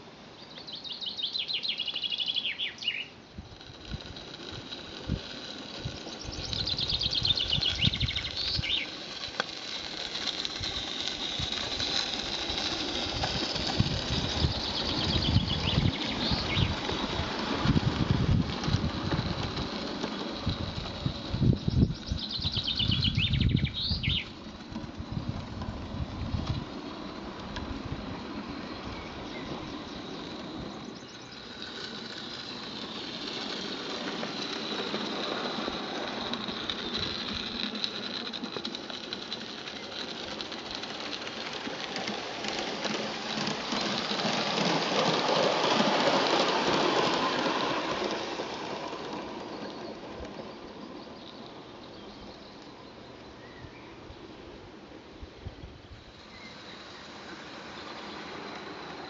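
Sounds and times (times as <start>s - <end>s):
model steam train running: 0.0s - 59.0s
bird call: 0.4s - 3.2s, 21.8s - 24.4s
wind gusts on microphone: 3.4s - 8.8s, 10.6s - 19.8s, 20.4s - 30.8s.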